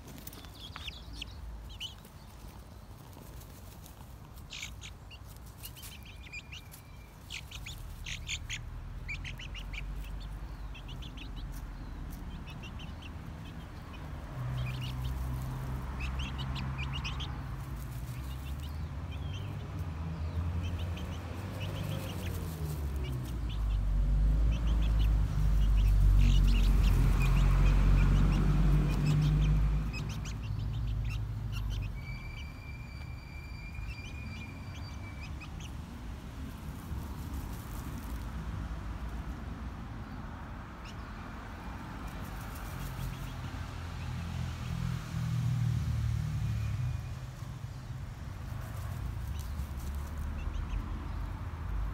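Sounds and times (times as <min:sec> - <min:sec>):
scratching in dry leaves: 0:00.0 - 0:32.0, 0:35.2 - 0:39.3, 0:41.9 - 0:43.5, 0:48.2 - 0:50.9
young chickens peeping: 0:00.0 - 0:45.0, 0:46.4 - 0:51.9.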